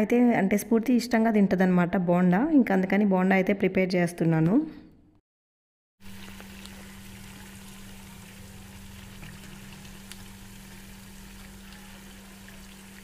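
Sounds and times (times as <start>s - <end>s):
fritters sizzling in hot oil: 6.0s - 13.0s.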